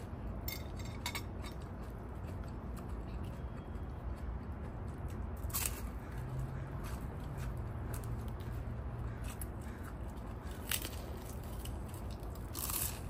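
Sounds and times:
crackers being crunched: 5.1 - 5.9, 9.3 - 13.0.

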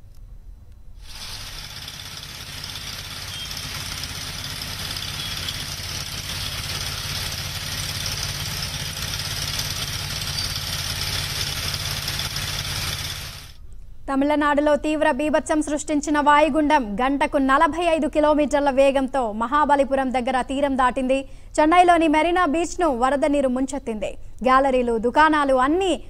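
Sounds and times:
large vehicle engine running: 1.2 - 13.6.

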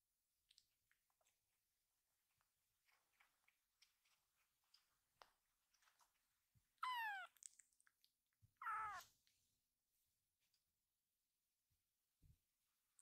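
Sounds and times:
kitten meowing: 6.8 - 7.5, 8.6 - 9.1.

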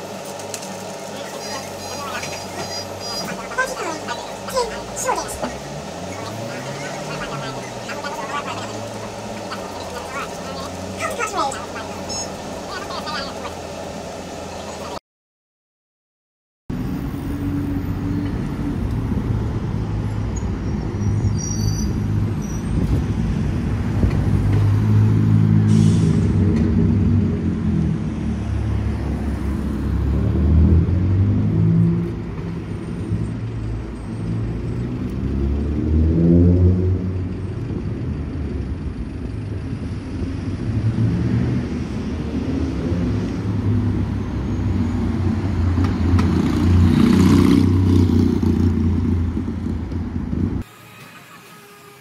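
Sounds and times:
engine accelerating: 0.0 - 15.0, 16.7 - 51.8
cars driving past: 1.4 - 15.0, 16.7 - 52.0.

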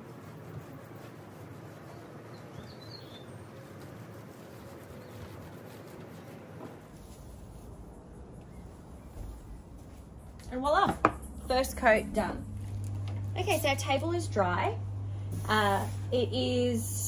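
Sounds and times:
faint bird chirp: 1.9 - 3.4.

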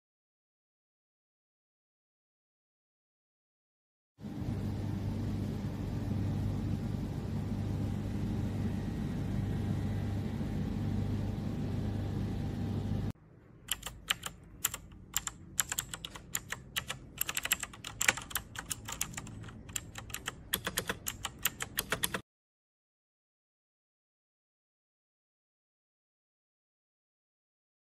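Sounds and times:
low hum with hiss: 4.2 - 22.2
mechanical keyboard typing: 13.7 - 22.2.

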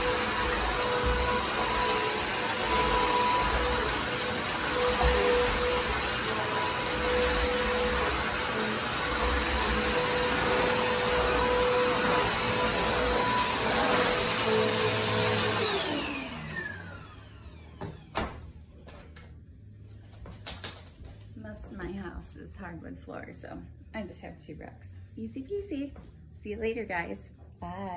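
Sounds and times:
vacuum cleaner running: 0.0 - 18.4.

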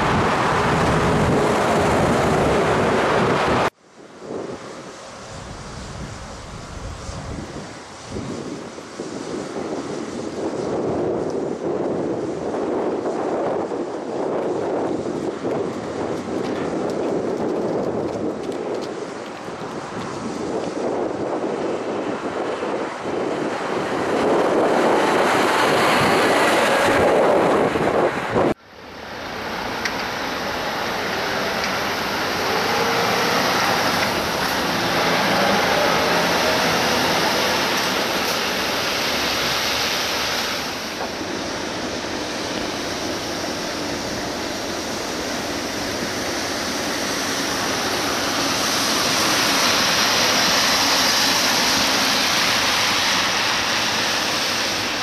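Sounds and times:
truck diesel engine: 0.0 - 3.8, 19.1 - 55.0
wind and road noise: 0.0 - 55.0.

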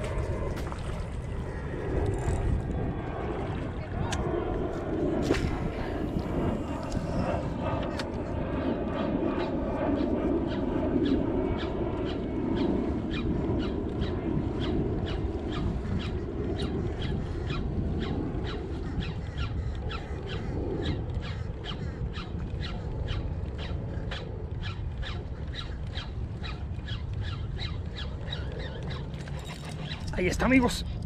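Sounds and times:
wind and water rushing: 0.0 - 4.2, 5.0 - 8.1.

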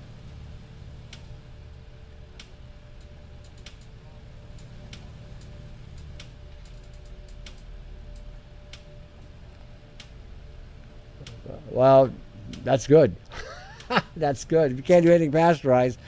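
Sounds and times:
low hum: 0.0 - 16.0
sharp clicks: 2.4 - 3.9.

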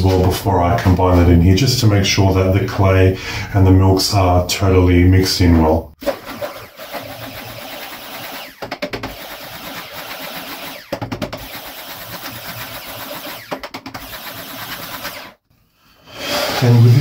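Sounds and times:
stick blender whizzing: 6.0 - 15.4.

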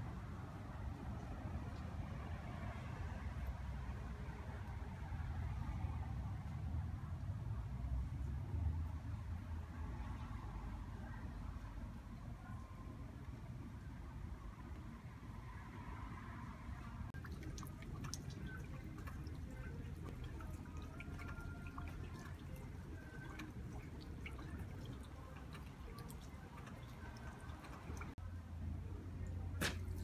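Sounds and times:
water drops plinking: 17.2 - 28.2.

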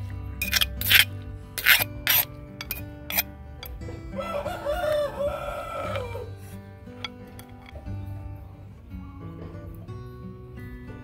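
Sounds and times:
background music: 0.0 - 11.0
sharp clicks and scrapes: 0.4 - 3.8
rooster crowing: 4.1 - 6.4.

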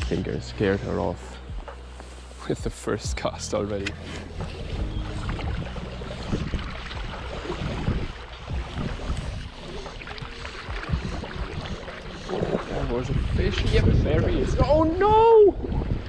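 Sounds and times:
wind buffeting microphone: 3.9 - 16.0.

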